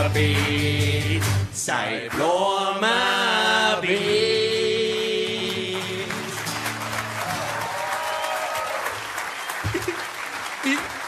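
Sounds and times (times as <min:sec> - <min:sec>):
live musical accompaniment: 0:00.0 - 0:11.0
audience applause: 0:04.8 - 0:11.0.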